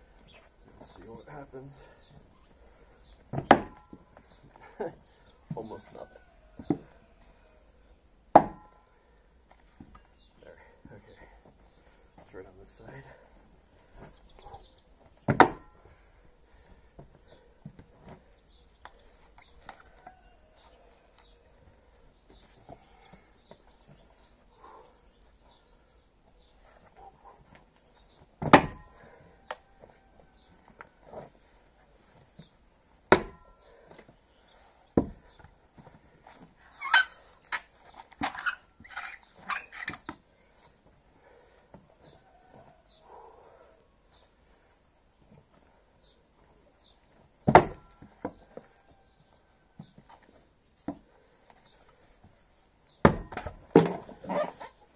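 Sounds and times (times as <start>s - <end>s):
birds chirping: 0.0s - 54.9s
wood knocking: 3.3s - 4.0s, 15.3s - 15.7s, 28.4s - 28.9s
axe chopping into log: 3.4s - 3.9s, 8.3s - 8.7s, 15.3s - 15.7s, 28.4s - 28.9s, 33.1s - 33.4s, 47.4s - 47.9s, 53.0s - 54.2s
wooden knocks and clatter: 53.0s - 54.5s.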